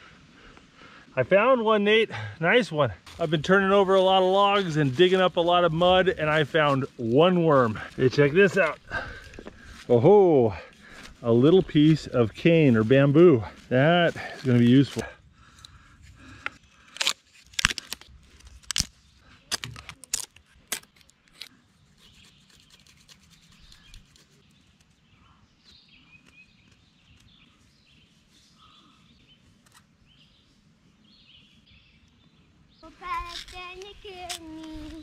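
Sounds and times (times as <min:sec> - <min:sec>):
cane cracking and snapping: 0:14.5 - 0:21.6
birds chirping faintly: 0:21.5 - 0:35.0.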